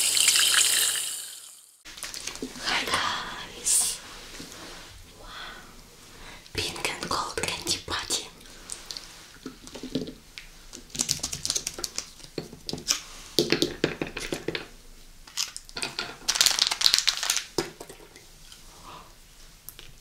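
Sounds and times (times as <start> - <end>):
packaging crinkling: 1.9 - 2.6, 15.3 - 17.6.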